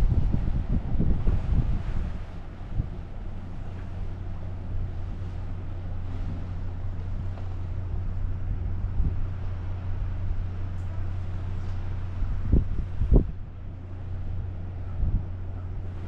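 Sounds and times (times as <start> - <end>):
ship's low hum: 0.0 - 16.0
wind buffeting microphone: 0.0 - 16.0.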